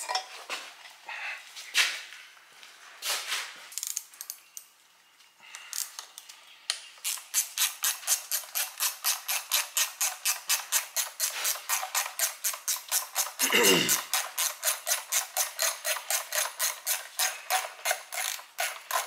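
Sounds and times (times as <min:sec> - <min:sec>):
ratchet wrench clicking: 0:03.8 - 0:04.4, 0:07.0 - 0:19.0.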